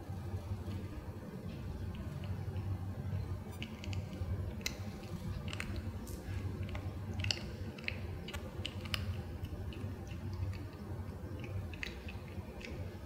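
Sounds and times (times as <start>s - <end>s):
kitten chewing crunchy snack: 3.4s - 13.0s.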